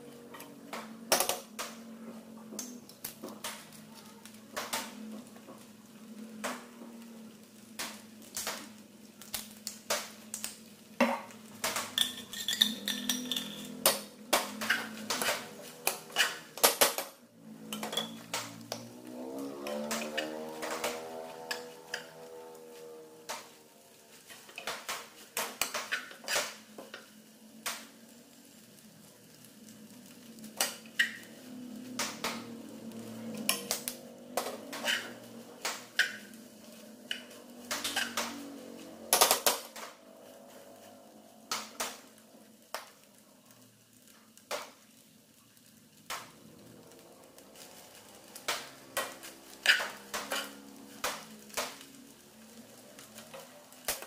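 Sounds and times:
metal spoon stirring in saucepan: 11.6s - 16.6s, 17.6s - 18.8s, 19.6s - 22.8s, 30.5s - 31.3s, 34.4s - 38.4s, 47.6s - 51.6s.

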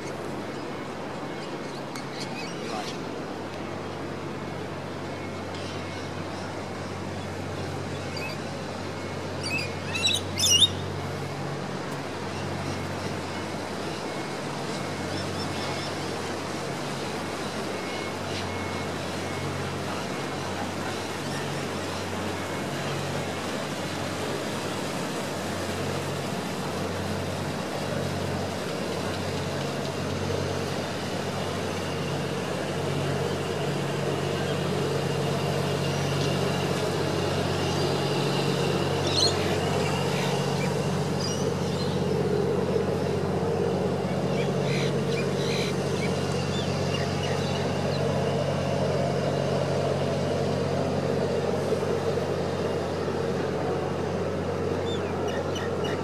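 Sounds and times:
boat engine hum: 0.0s - 56.0s
bird calls: 9.4s - 11.0s, 43.9s - 48.1s.

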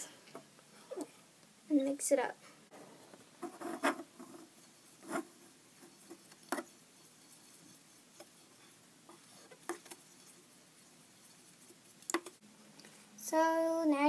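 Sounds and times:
brush tapping plastic tub: 3.4s - 12.4s
brush swishing in liquid: 3.8s - 12.4s.

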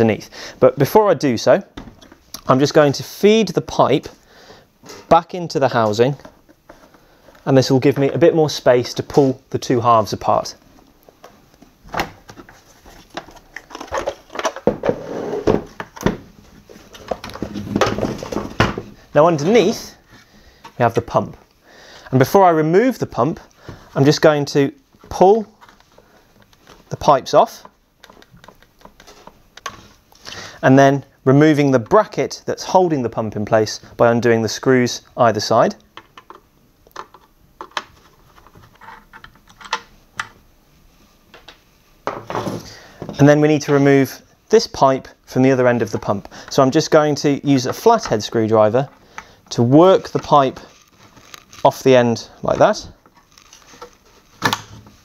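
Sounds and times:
plastic halves scraping: 11.9s - 20.9s, 47.6s - 55.0s.

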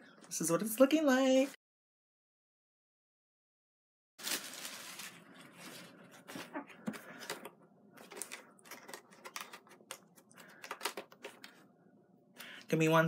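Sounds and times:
packaging crinkling and rustling: 4.2s - 11.6s.

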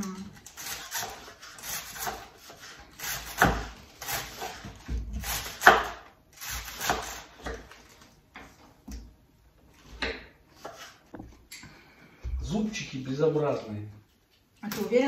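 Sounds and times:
knife cutting on wooden board: 0.4s - 7.7s.

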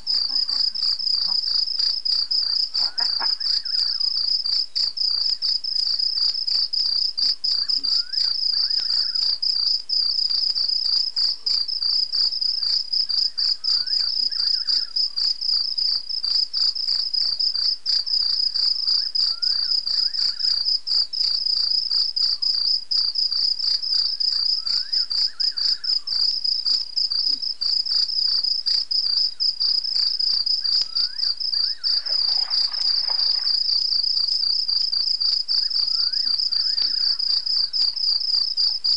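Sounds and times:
crickets trilling: 0.0s - 38.9s
brief rustle: 32.0s - 33.7s.

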